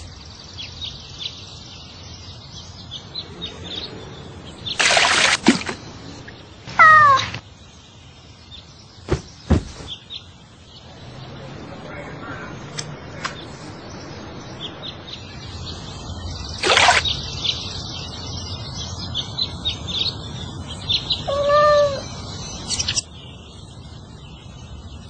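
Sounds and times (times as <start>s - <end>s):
birds chirping: 0.0s - 25.0s
cat meow: 6.7s - 7.4s, 21.2s - 22.1s.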